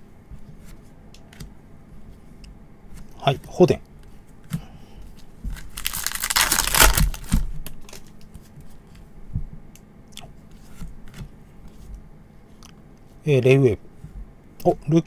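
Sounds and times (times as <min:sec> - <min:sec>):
foil wrapper tearing: 0:05.6 - 0:08.1.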